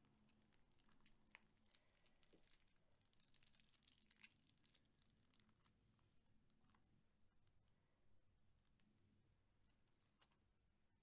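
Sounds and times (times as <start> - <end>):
faint crinkling of plastic bags: 0.0 - 7.8.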